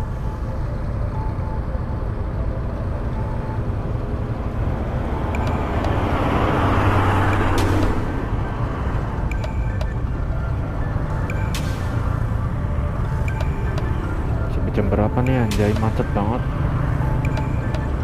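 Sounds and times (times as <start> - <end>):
traffic rumble: 0.0 - 18.0
vehicle passing close by: 3.6 - 9.2.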